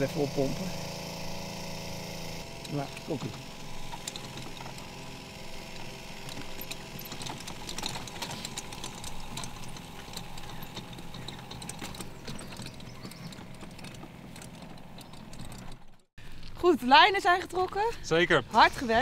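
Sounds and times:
spray pump humming: 0.0 - 15.9
cart clicking and rattling: 0.0 - 16.1.

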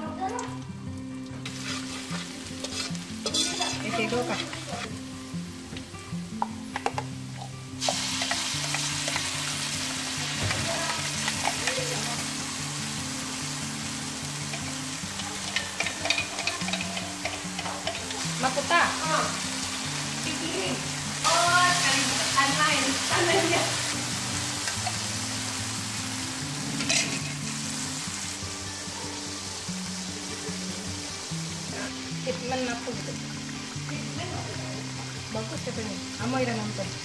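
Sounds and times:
food sizzling in hot oil: 0.0 - 37.0
metal spatula scraping a wok: 1.4 - 5.0, 15.4 - 18.1, 26.7 - 27.6.

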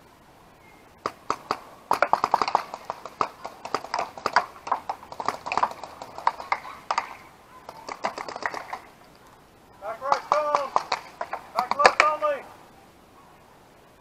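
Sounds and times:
paintball gun pops: 10.1 - 12.2.

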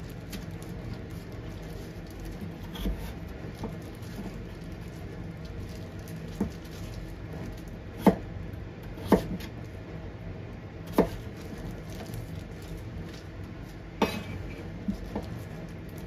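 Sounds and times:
steady low hum: 0.0 - 16.0
knife cutting potato: 2.6 - 4.3, 10.9 - 11.3.

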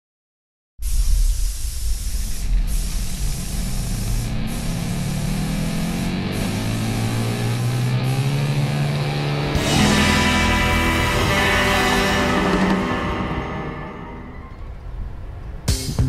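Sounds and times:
air spray gun hissing: 0.8 - 8.8
rock music with guitar: 5.8 - 14.6.

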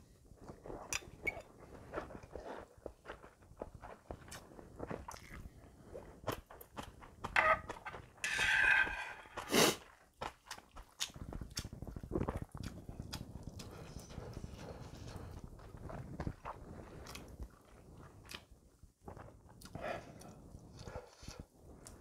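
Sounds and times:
wet chewing and smacking: 0.4 - 8.2, 9.8 - 22.0
loud noodle slurp: 9.3 - 10.0.

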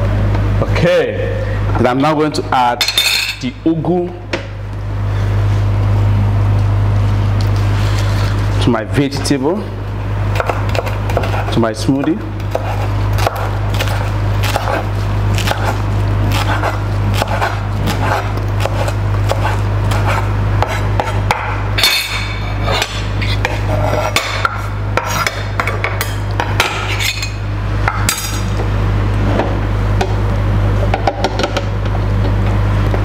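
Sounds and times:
knife chopping on wooden board: 10.4 - 21.6, 22.7 - 26.7.

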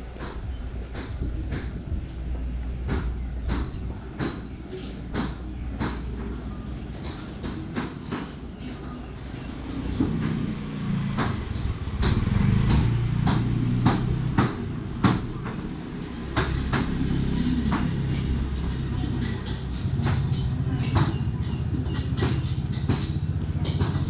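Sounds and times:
metal being struck: 11.1 - 18.8.

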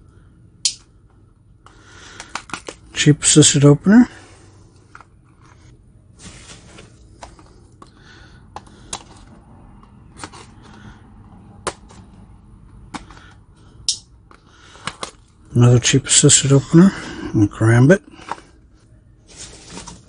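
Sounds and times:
packaging rustling: 6.2 - 7.6, 19.3 - 20.0.

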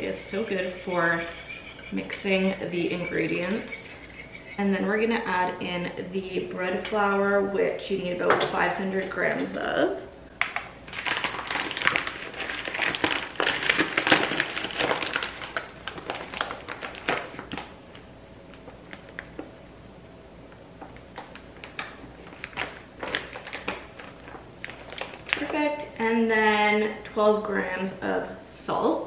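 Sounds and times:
paper bag crinkling and rustling: 10.9 - 19.5, 21.0 - 25.6.

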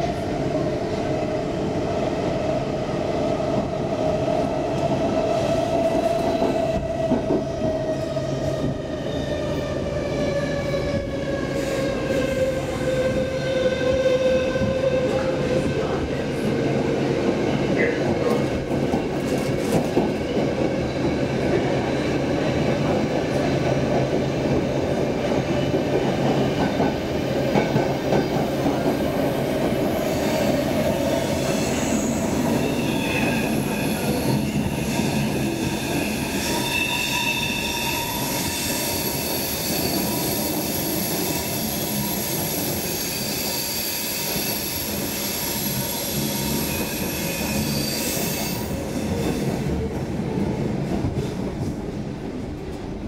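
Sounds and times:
subway wheel-on-rail rumble: 0.0 - 53.0.

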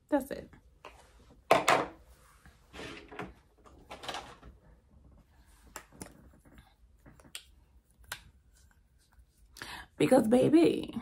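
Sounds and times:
soft shuffles of handled items: 0.6 - 7.2.

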